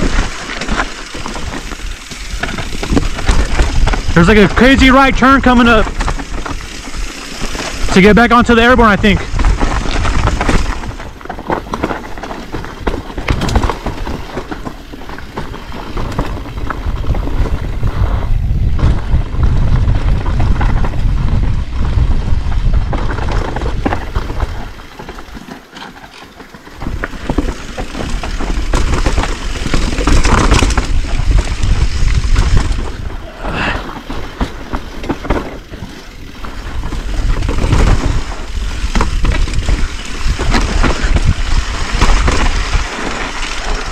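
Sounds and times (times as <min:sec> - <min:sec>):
bike clicks and rattles: 0:00.0 - 0:43.9
tyres rolling over dirt: 0:00.0 - 0:43.9
wind buffeting microphone: 0:16.0 - 0:24.8, 0:26.8 - 0:43.9.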